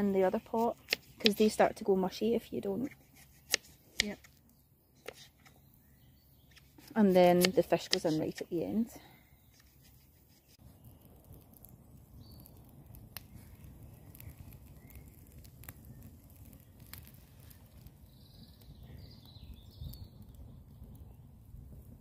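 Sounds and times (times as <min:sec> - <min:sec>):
campfire crackles: 0:00.0 - 0:22.0
faint bird chirps: 0:04.5 - 0:06.7, 0:13.4 - 0:15.2, 0:15.8 - 0:21.2.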